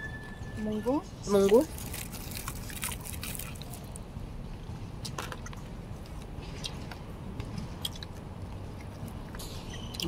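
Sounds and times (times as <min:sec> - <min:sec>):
low background noise: 0:00.0 - 0:10.0
person chewing food: 0:01.7 - 0:04.0, 0:06.0 - 0:10.0.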